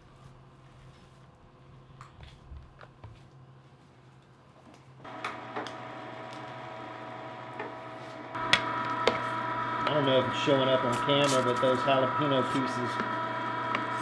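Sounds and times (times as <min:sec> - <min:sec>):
electric meat grinder whining: 0:05.1 - 0:14.0.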